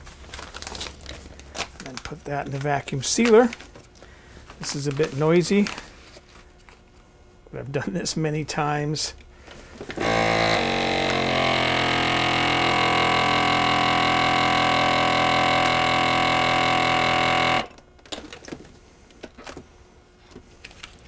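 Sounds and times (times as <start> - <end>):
vacuum sealer pump humming: 9.3 - 20.6.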